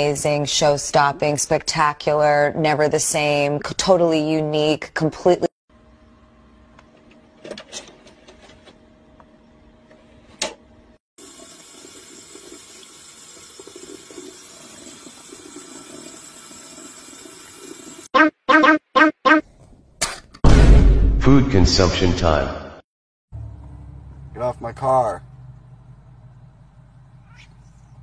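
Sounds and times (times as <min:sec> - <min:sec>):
tap water running into sink: 0:11.2 - 0:18.1.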